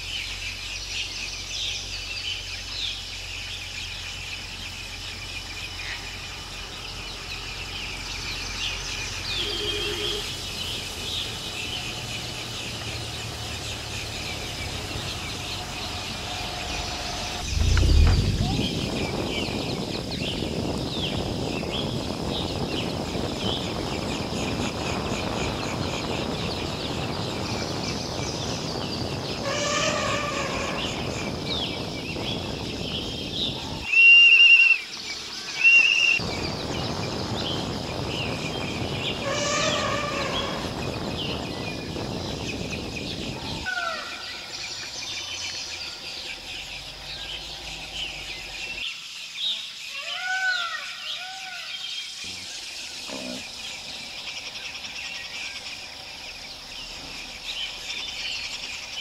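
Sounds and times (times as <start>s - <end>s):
bird calls and chirps: 0.0s - 59.0s
steady rushing noise: 16.0s - 28.4s
loud short high whistles: 33.9s - 34.8s.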